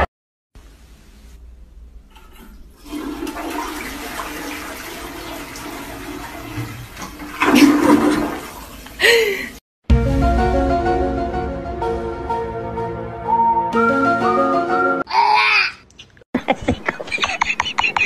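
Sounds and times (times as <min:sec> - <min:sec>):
toilet flushing: 0:02.1 - 0:09.5
background music: 0:09.8 - 0:15.1.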